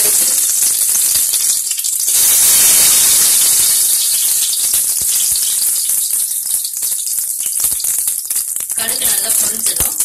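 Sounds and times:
seeds crackling and spluttering: 0.0s - 10.0s
seeds sizzling in hot oil: 0.0s - 10.0s.

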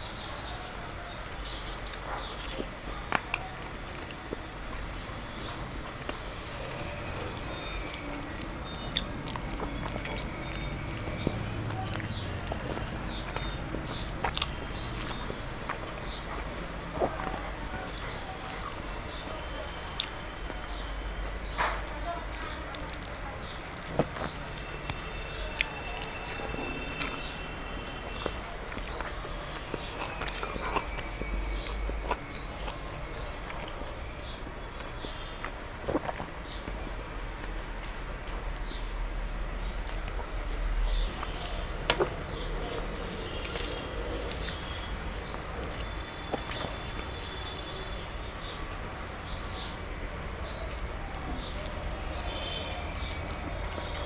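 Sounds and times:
quiet chewing: 0.0s - 54.0s
fingers squishing rice: 21.8s - 38.8s, 39.6s - 54.0s.

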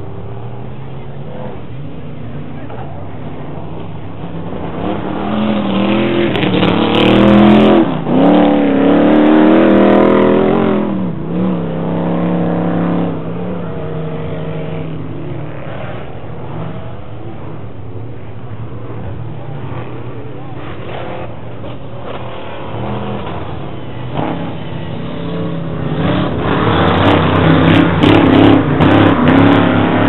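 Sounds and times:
racing engines revving: 0.0s - 30.0s.

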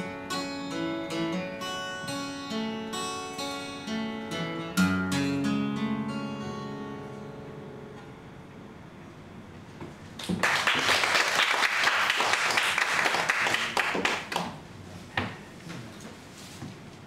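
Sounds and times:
audience clapping: 10.2s - 14.6s.

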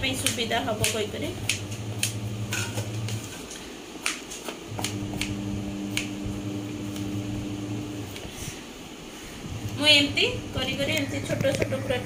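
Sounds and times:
steady low hum: 0.0s - 4.0s, 4.6s - 12.0s.

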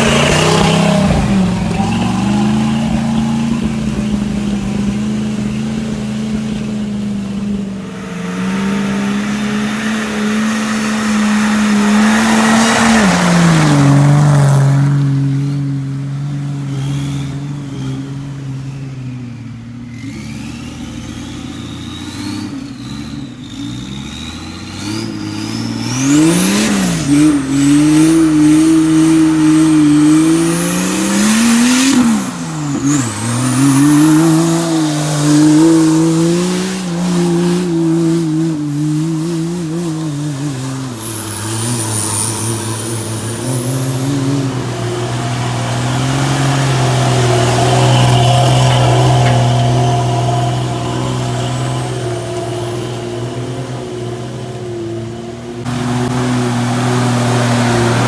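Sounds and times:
off-road vehicle engine revving: 0.0s - 58.0s
high-pitched whine: 18.6s - 56.2s.

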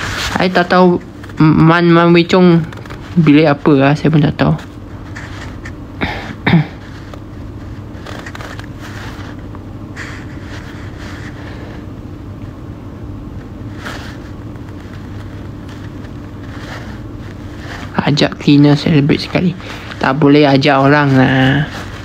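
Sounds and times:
faint soft rustles: 0.0s - 5.8s, 6.8s - 11.9s, 13.4s - 22.0s
low room hum: 0.0s - 22.0s.

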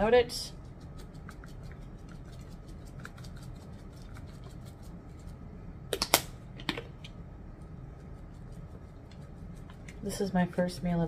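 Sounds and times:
cheese shaken from shaker: 0.3s - 5.4s.

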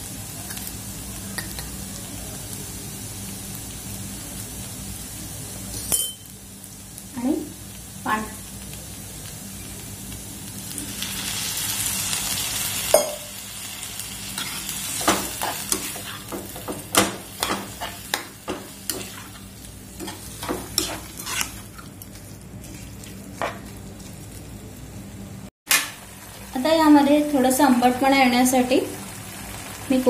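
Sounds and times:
metal spoon scraping pan: 14.4s - 16.4s, 17.0s - 19.4s, 20.0s - 23.7s.

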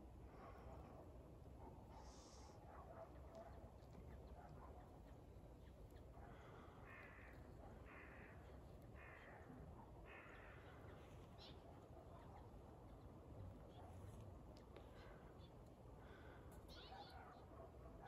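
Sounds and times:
faint crow cawing: 6.3s - 11.0s.

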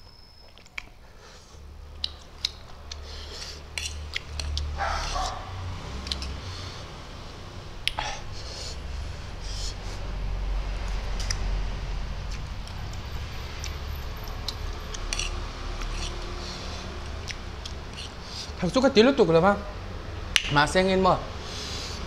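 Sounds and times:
noodles slurped and chewed: 12.2s - 18.6s.

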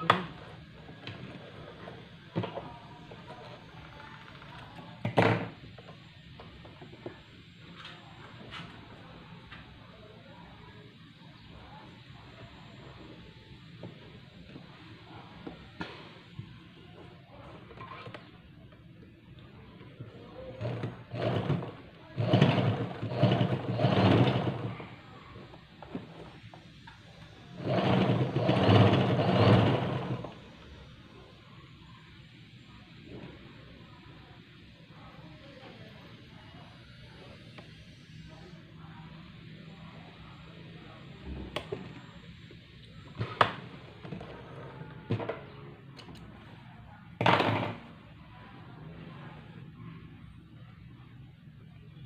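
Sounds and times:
electric sewing machine stitching: 20.6s - 24.8s, 27.5s - 30.4s.

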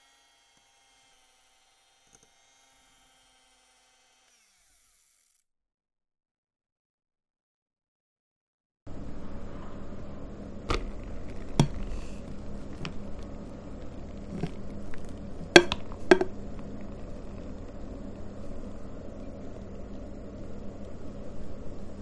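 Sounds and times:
low steady hum: 8.9s - 22.0s
clicks and taps of bowl and plastic: 15.6s - 16.3s.

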